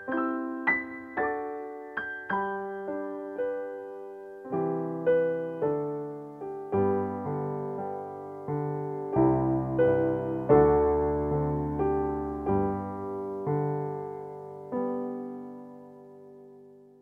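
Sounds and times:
slow piano music: 0:00.0 - 0:17.0
deep piano bass notes: 0:06.2 - 0:15.3.

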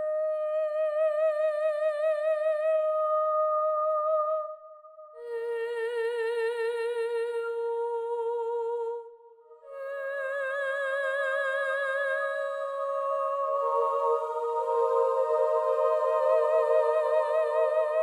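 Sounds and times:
slow music with held notes: 0:12.4 - 0:18.0.

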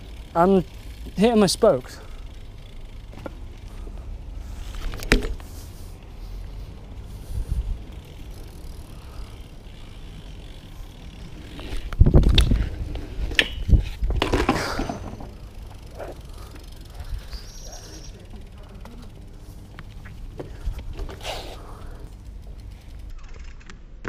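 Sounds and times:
bike rolling over paving: 0:00.0 - 0:23.8
wind buffeting microphone: 0:07.2 - 0:08.1, 0:10.3 - 0:14.4
bike crash thumps and clattering: 0:12.2 - 0:15.5.

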